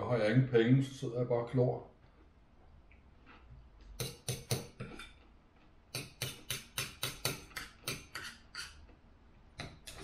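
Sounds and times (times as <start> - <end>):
knife and fork scraping plate: 7.9 - 8.8.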